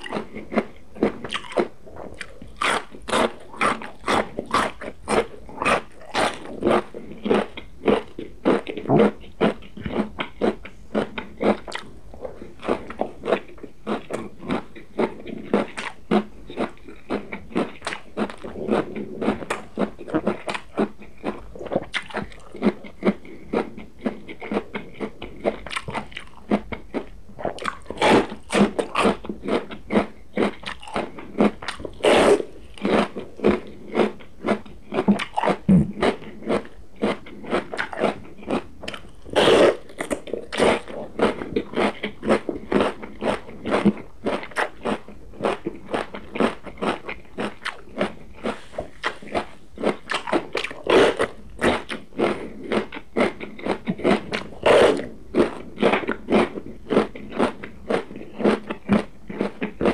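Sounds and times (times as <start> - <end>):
crunchy chewing of raw pepper: 0.0 - 59.9.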